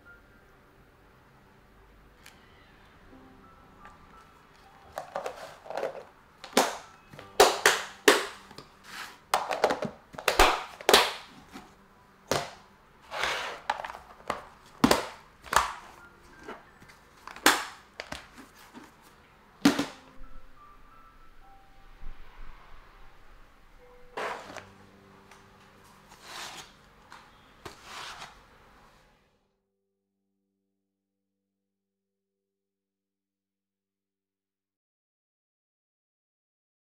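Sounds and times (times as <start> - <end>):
plastic lids snapping shut: 9.4 - 11.3, 13.7 - 15.8.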